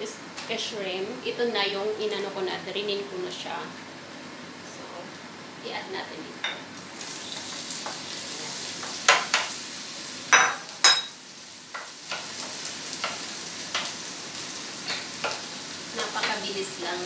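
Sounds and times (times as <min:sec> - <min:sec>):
shrimp sizzling in a frying pan: 0:01.8 - 0:17.0
wooden spoon tapping a pan: 0:08.8 - 0:09.6, 0:11.8 - 0:14.0, 0:14.9 - 0:16.4.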